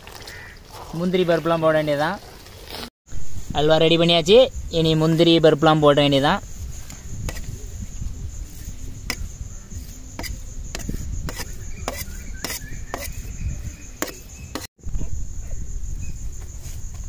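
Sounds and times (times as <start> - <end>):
crickets chirping: 3.1 - 17.0
knife scraping metal pan: 10.2 - 13.4.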